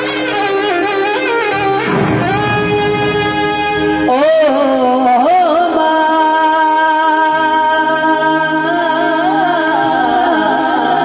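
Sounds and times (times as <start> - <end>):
keyboard chords: 0.0 - 5.0
low sustained bass note: 1.6 - 4.3
man singing devotional melody: 4.0 - 11.0.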